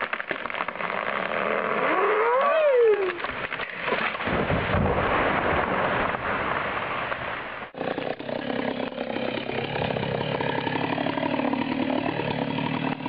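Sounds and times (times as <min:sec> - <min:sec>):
tree trunk hitting ground: 0:00.0 - 0:01.3, 0:03.0 - 0:07.4
wood cracking: 0:00.0 - 0:13.0.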